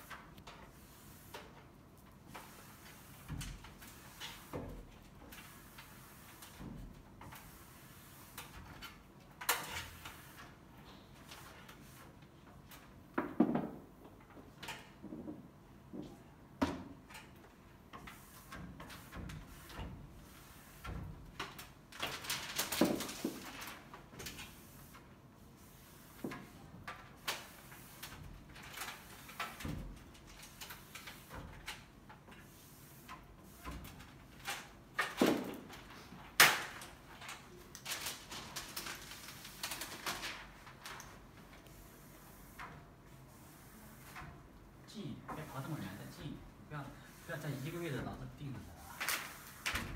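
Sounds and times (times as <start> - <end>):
hands rubbing film on glass: 37.6 - 44.2, 47.0 - 49.9.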